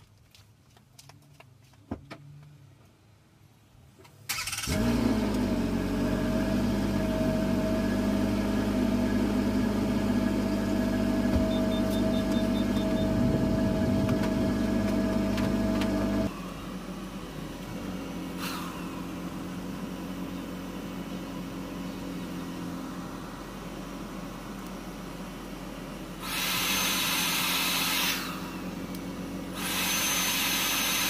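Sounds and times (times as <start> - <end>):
engine cranking and starting: 4.3 - 5.8
engine idling: 4.6 - 30.8.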